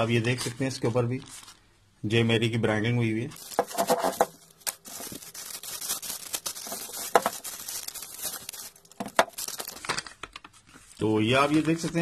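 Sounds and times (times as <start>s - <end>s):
plastic bag crinkling: 3.3s - 12.0s.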